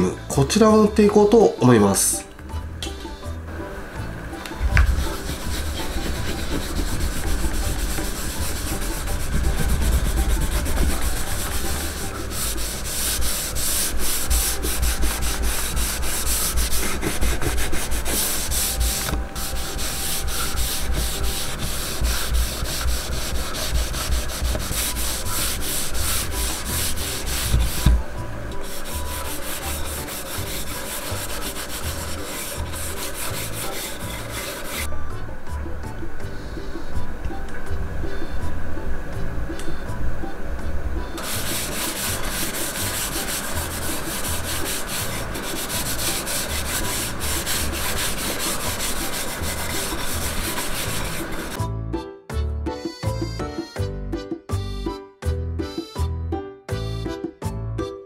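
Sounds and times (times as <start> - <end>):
cloth scrubbing on wood: 4.7 - 34.9, 41.2 - 51.6.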